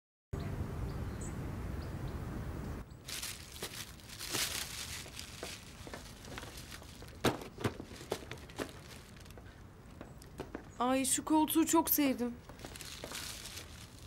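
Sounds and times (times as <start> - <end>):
paper and cardboard rustling: 3.1 - 9.5, 12.6 - 14.0.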